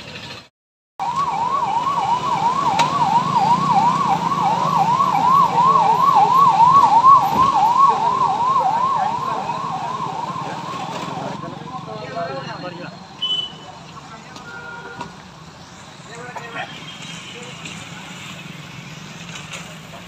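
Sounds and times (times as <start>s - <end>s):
electronic siren whooping: 1.0s - 11.8s.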